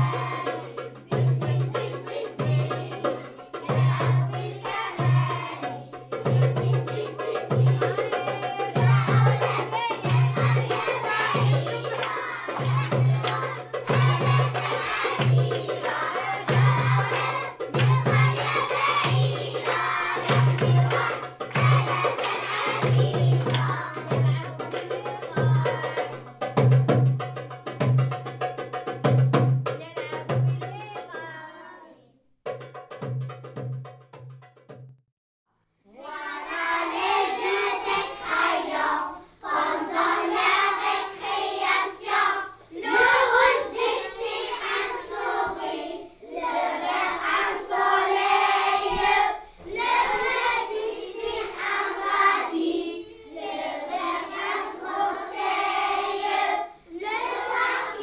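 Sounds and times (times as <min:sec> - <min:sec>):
children singing in chorus: 0:00.0 - 0:26.4, 0:35.9 - 0:58.0
pulsing drum beat music: 0:00.0 - 0:31.0, 0:32.4 - 0:34.9.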